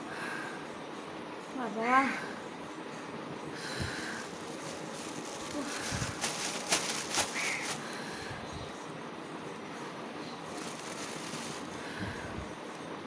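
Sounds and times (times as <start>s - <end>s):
plastic bag crinkling: 4.0s - 8.0s, 10.5s - 11.8s.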